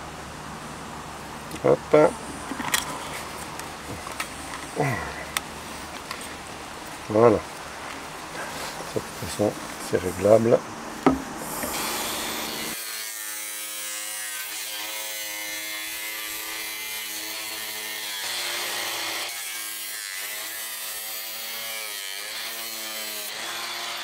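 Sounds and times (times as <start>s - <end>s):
power tool cutting plastic pipe: 11.0s - 24.0s.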